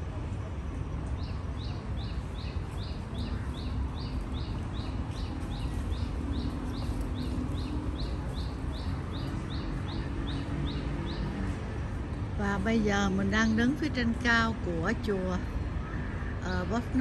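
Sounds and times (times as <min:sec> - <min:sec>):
bird chirping: 0:01.2 - 0:11.3.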